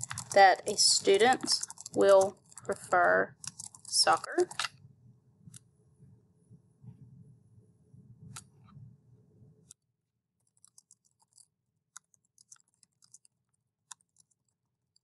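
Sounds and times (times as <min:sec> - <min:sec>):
typing on keyboard: 0:00.0 - 0:04.7, 0:10.5 - 0:14.6.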